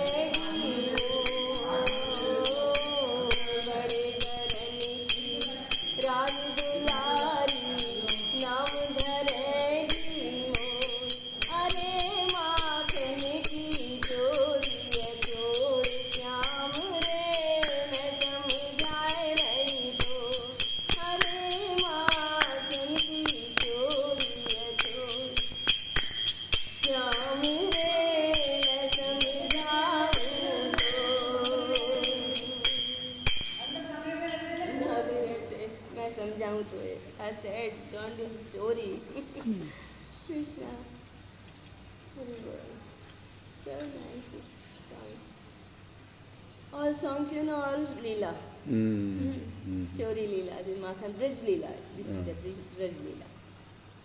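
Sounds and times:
woman singing: 0:00.0 - 0:26.0, 0:26.8 - 0:39.5
clinking metal percussion: 0:00.0 - 0:34.9.

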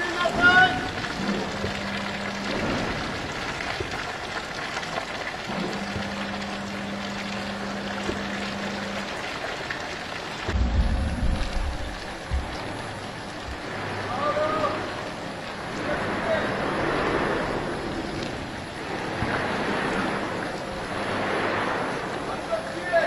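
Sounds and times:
low steady hum: 0:00.0 - 0:23.0
molten steel pouring: 0:00.0 - 0:23.0
heavy low rumbling and thuds: 0:10.4 - 0:14.1.

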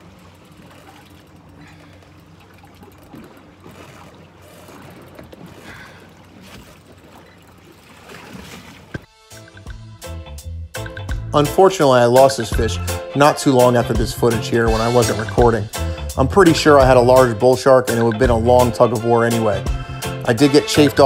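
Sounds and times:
low hum: 0:00.0 - 0:08.4
water sloshing around boat: 0:00.0 - 0:09.2
music with a beat: 0:09.1 - 0:11.3.

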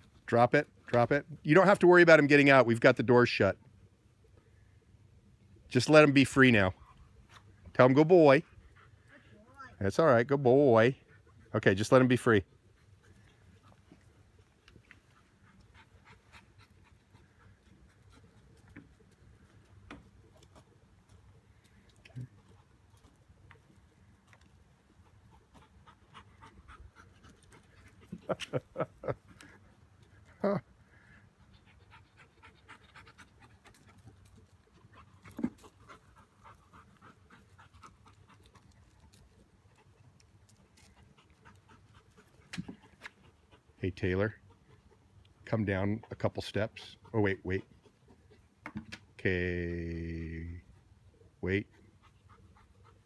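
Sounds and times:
dog panting and sniffing: 0:07.1 - 0:09.2, 0:12.4 - 0:49.2, 0:50.6 - 0:53.0.

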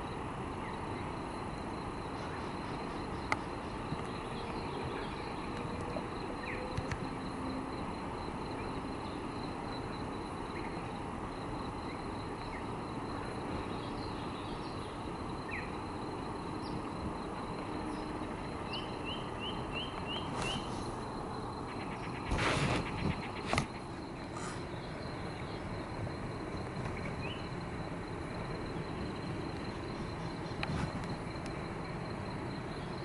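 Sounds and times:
background hiss: 0:00.0 - 0:33.0
bird chirps: 0:17.9 - 0:21.0.

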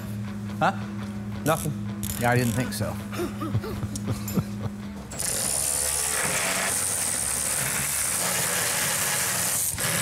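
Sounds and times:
electric ratchet motor whine: 0:05.1 - 0:10.0.

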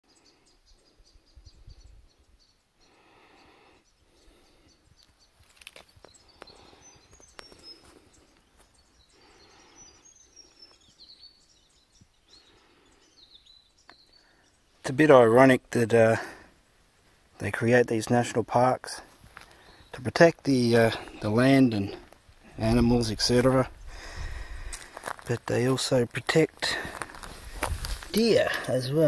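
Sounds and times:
small birds chirping: 0:00.0 - 0:29.0
soft rustling: 0:26.7 - 0:28.6.

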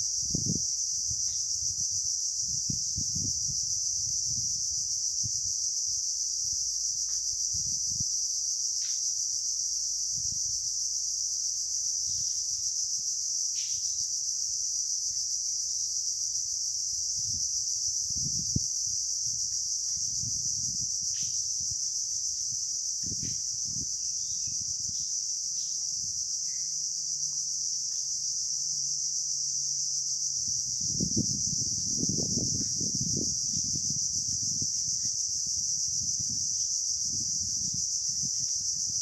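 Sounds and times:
insects droning: 0:00.0 - 0:39.0.

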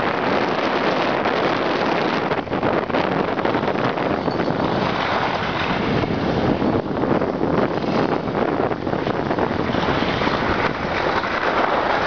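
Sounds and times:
wind on microphone: 0:00.0 - 0:12.0
skis sliding on snow: 0:04.7 - 0:06.7, 0:07.5 - 0:12.0.

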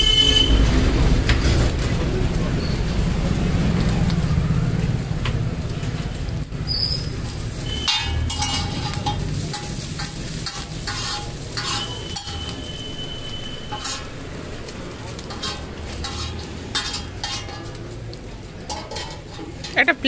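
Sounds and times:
noodles sizzling on a griddle: 0:01.5 - 0:20.0
metal spatulas scraping griddle: 0:07.6 - 0:17.8, 0:18.6 - 0:20.0.

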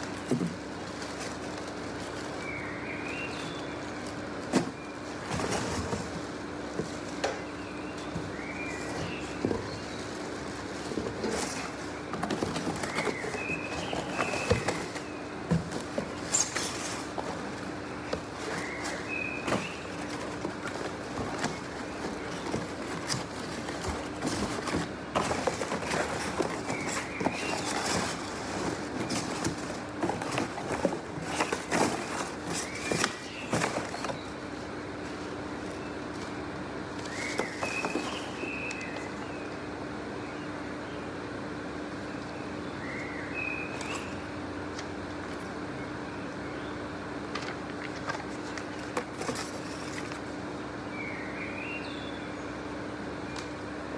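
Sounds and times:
cardboard and plastic wrap rustling: 0:00.0 - 0:39.5, 0:47.3 - 0:50.4
steady low hum: 0:00.0 - 0:53.9.

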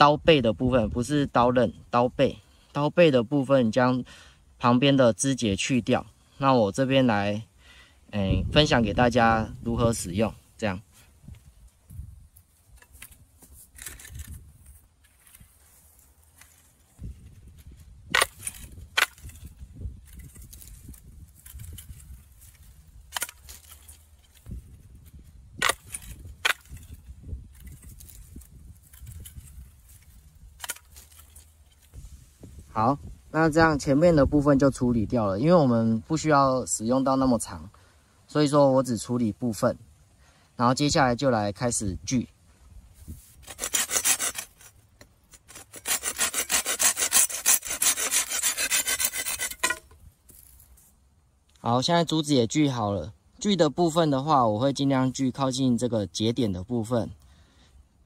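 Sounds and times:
hand saw cutting bamboo: 0:18.1 - 0:19.5, 0:20.1 - 0:24.5, 0:25.6 - 0:26.9, 0:27.6 - 0:32.0, 0:43.2 - 0:50.0.

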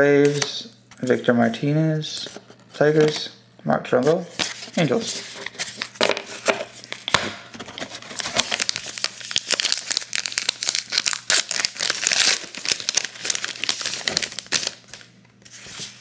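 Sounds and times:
wrapper crinkling as torn open: 0:07.8 - 0:15.1.

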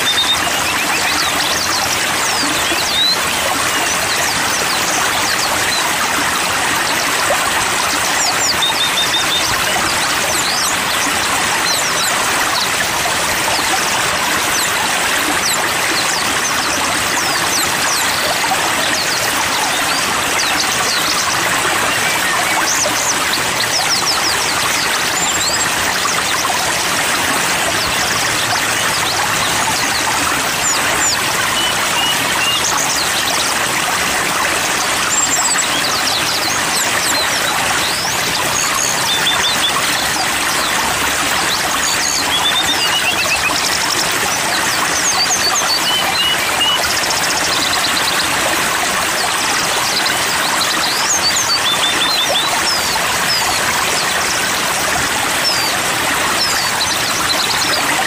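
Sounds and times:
bird chirps and whistles: 0:00.0 - 0:06.1, 0:06.9 - 0:12.8, 0:27.7 - 0:33.5, 0:35.0 - 0:40.9, 0:41.5 - 0:48.2, 0:49.9 - 0:54.3
flowing water: 0:00.0 - 0:58.0.

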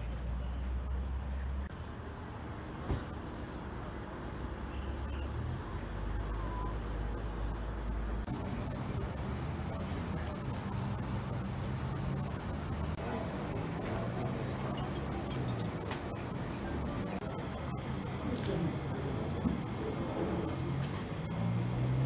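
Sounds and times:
high-pitched insect drone: 0:00.0 - 0:22.0.

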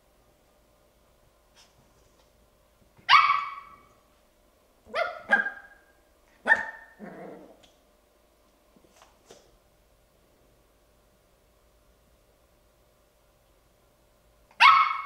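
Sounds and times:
puppy barking: 0:03.1 - 0:03.9, 0:04.9 - 0:07.2, 0:14.5 - 0:15.0.

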